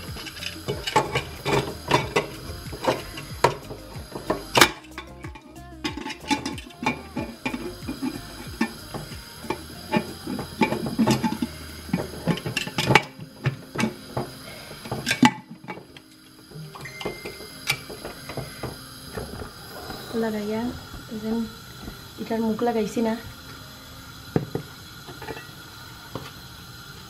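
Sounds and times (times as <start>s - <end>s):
pressure cooker metal clicks and clatter: 5.9s - 16.2s, 17.0s - 18.8s.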